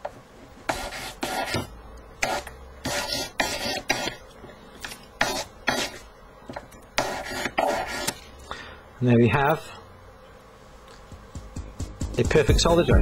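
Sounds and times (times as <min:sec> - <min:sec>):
hand file rasping on metal: 0:02.2 - 0:04.2, 0:07.0 - 0:08.2.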